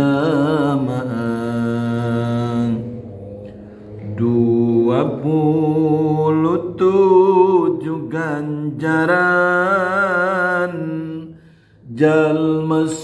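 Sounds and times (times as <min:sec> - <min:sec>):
man chanting unaccompanied: 0:00.0 - 0:13.0
man breathing: 0:11.3 - 0:11.9.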